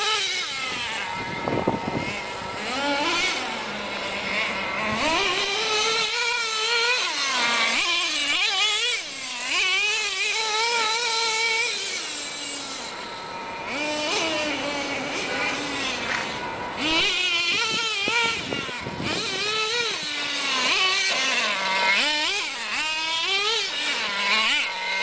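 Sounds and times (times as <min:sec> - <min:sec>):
small nitro engine revving: 0:00.0 - 0:25.0.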